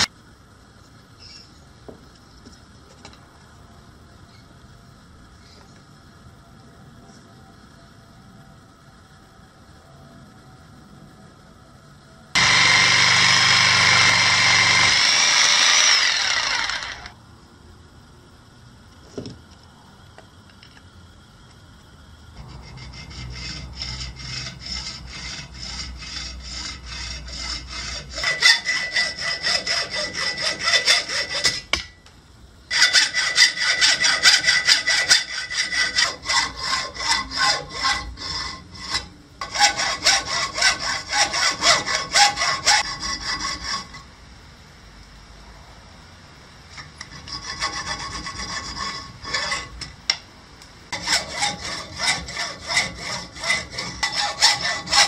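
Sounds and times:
hacksaw cutting wood: 12.4 - 17.1, 23.4 - 31.7, 32.7 - 38.0, 38.8 - 43.9, 51.0 - 55.0
loud steady whirring: 12.4 - 17.2.

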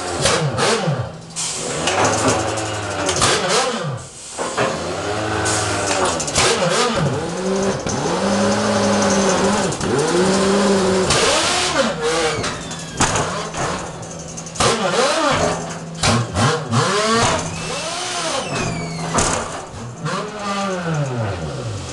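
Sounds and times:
air motors whining: 3.8 - 21.9
metallic clanks: 5.6 - 16.4, 17.1 - 21.9.

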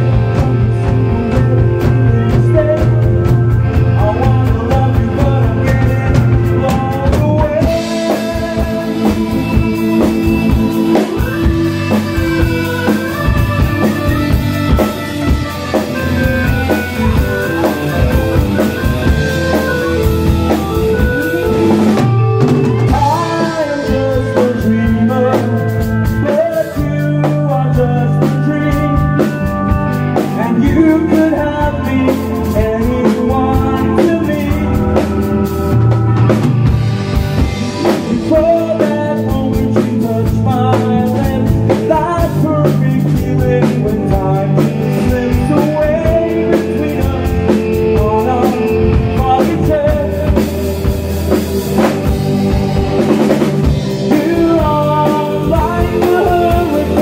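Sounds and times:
person singing: 0.0 - 36.4, 37.1 - 57.0
acoustic and electric guitars: 0.0 - 57.0
drum kit: 0.0 - 57.0
keyboard: 0.0 - 57.0.

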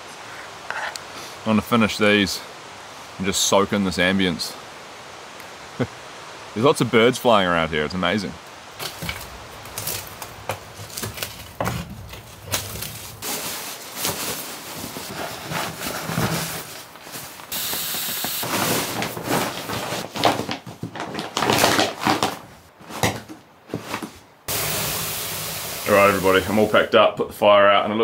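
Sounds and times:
steady hiss: 0.0 - 10.8, 11.4 - 20.1, 24.5 - 28.0
nylon fabric rustling: 9.5 - 23.1.

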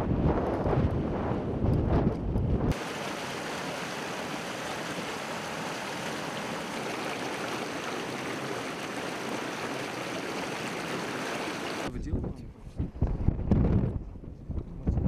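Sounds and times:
water rushing in a stream: 2.7 - 11.9.

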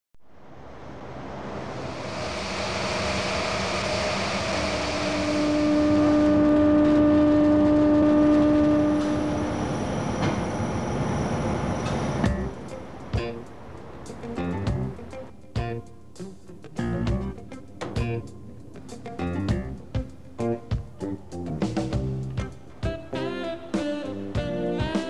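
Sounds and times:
humming whine: 0.4 - 15.2
factory machinery running: 0.6 - 14.3.

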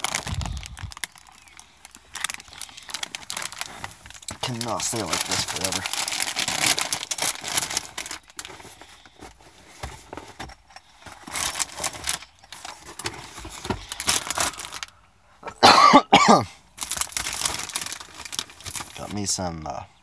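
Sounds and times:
rustling and handling noises: 0.0 - 15.7, 16.8 - 19.6
person coughing: 15.4 - 16.6.

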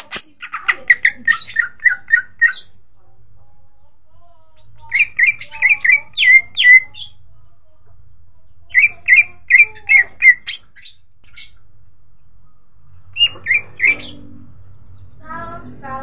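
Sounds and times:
bird singing whistled notes: 13.1 - 14.4.

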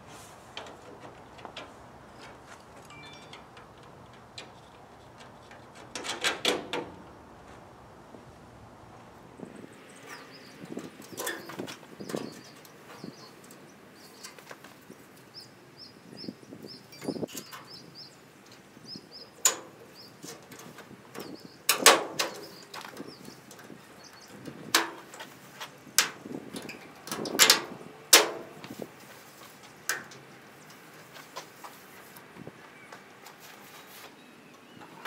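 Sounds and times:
small bird chirping: 9.4 - 20.2, 22.3 - 24.4.

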